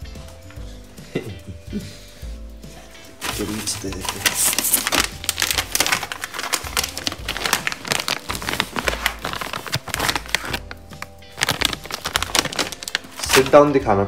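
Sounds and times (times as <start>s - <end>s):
background music: 0.0s - 14.0s
plastic packet crinkling: 3.2s - 13.8s.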